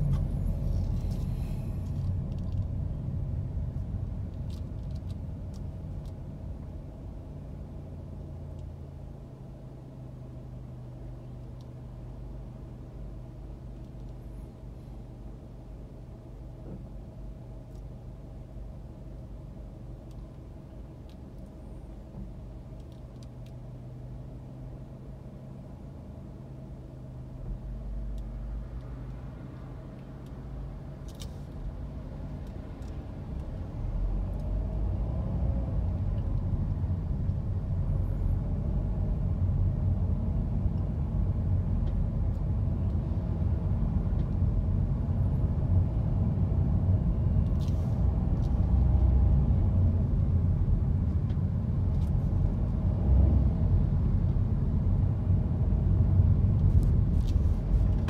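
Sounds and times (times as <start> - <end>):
low engine hum: 0.0 - 58.0
tyres rumbling on road: 25.6 - 58.0.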